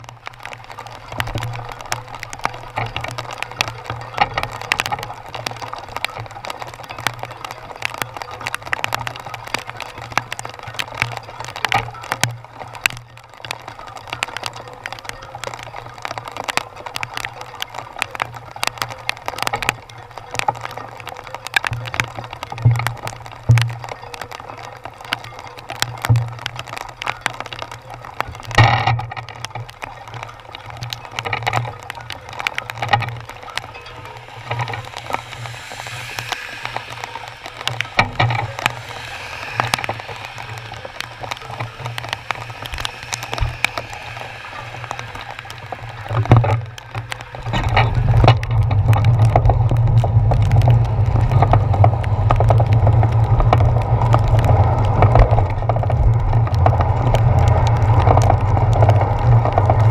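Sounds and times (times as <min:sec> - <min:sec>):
raindrops tapping on camera housing: 0:00.0 - 0:59.9
tyres on wet road: 0:00.0 - 0:59.9
wind on camera: 0:00.0 - 0:59.9.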